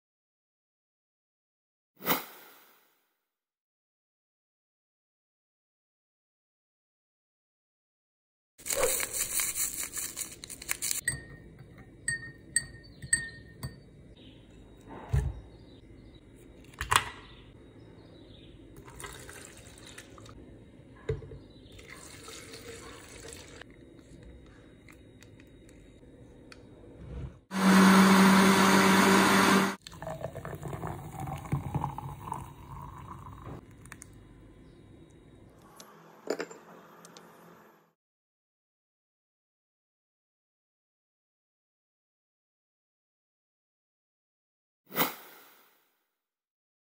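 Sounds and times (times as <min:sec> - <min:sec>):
drink pouring into glass: 0:18.8 - 0:20.3, 0:21.8 - 0:23.6, 0:29.8 - 0:34.0
liquid pouring into blender jar: 0:18.8 - 0:20.3, 0:21.8 - 0:23.6, 0:29.8 - 0:34.0
electric blender running: 0:27.5 - 0:31.5.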